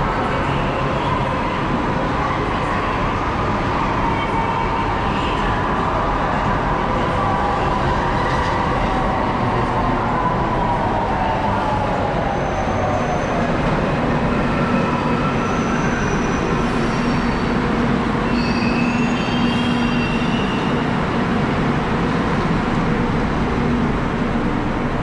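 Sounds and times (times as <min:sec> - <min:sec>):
train rumble and hum: 0:00.0 - 0:25.0
brakes squealing: 0:18.2 - 0:21.0.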